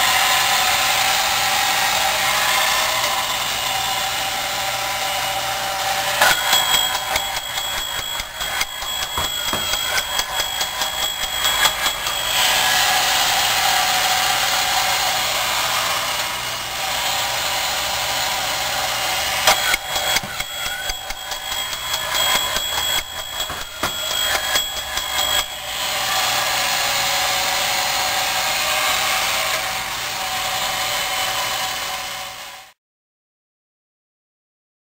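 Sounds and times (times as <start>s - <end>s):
toy motor and gears whirring: 5.8s - 14.4s, 19.2s - 26.6s
toy bell ringing rapidly: 6.2s - 12.6s, 19.5s - 25.8s.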